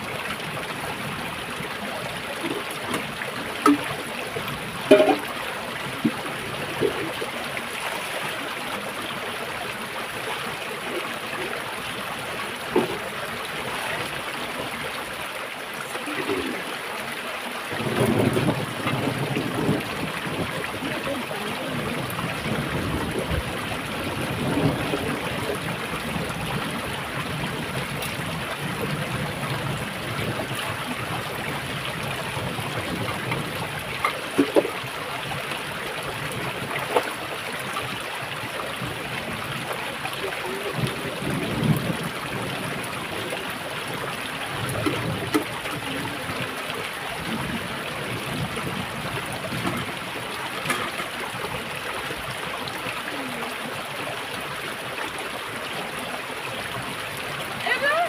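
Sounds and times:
stream trickling over rocks: 0:00.0 - 0:58.0
metal pots clinking: 0:04.9 - 0:05.4.

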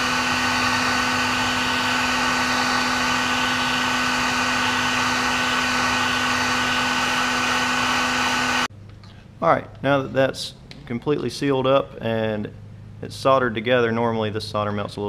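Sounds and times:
heat gun blowing air: 0:00.0 - 0:08.7.

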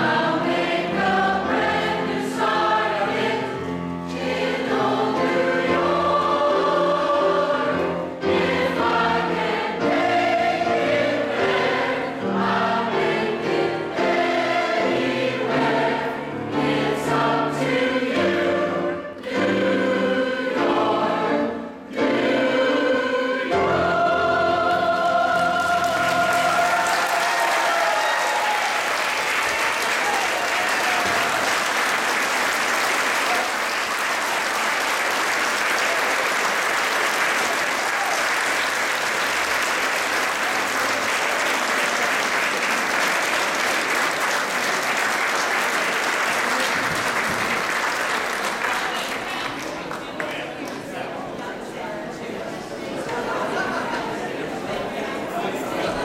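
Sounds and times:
church choir singing chord: 0:00.0 - 0:27.3
audience applause: 0:25.3 - 0:50.8.

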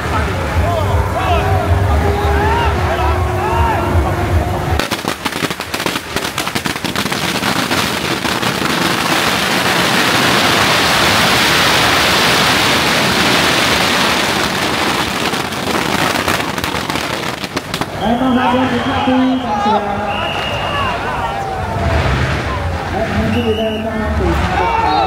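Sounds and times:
firecrackers crackling: 0:04.4 - 0:25.0.

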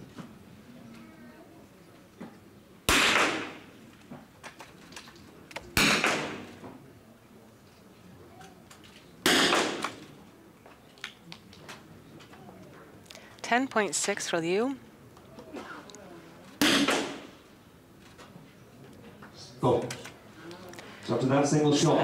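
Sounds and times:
rifle shots with echo: 0:02.9 - 0:03.8, 0:05.8 - 0:06.6, 0:09.2 - 0:10.1, 0:16.6 - 0:17.4.

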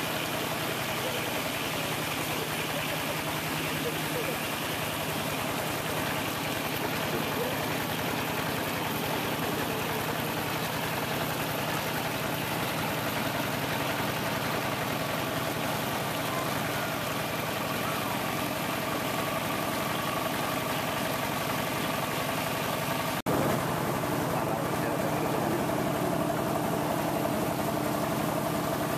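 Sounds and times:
small boat engine running: 0:00.0 - 0:28.9.

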